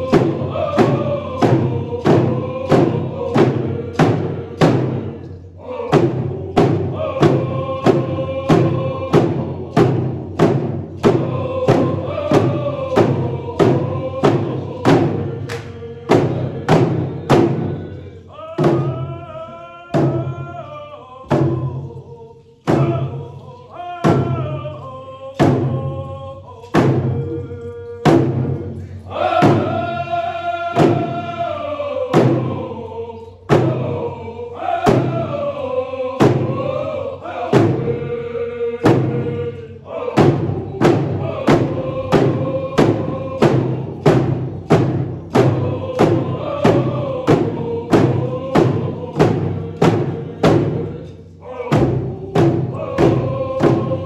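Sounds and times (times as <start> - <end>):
hand drums beating: 0.0 - 5.2, 5.9 - 17.8, 28.0 - 28.7, 40.2 - 50.9, 51.7 - 54.0
group singing in unison: 0.0 - 54.0.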